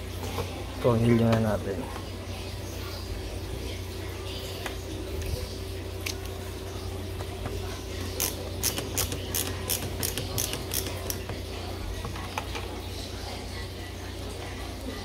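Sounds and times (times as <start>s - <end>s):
screwdriver clicking: 8.2s - 11.2s.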